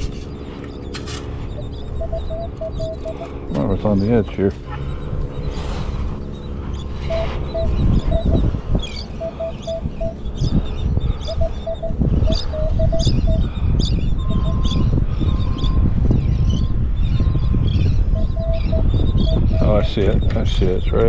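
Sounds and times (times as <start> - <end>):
low rumble: 0.0 - 21.0
metal detector beeping: 0.2 - 3.7, 6.4 - 10.5, 11.2 - 13.5, 17.2 - 19.9.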